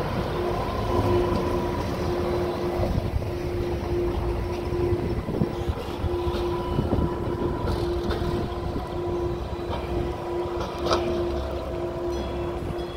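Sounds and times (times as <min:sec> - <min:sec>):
streetcar rolling on tracks: 0:00.0 - 0:12.9.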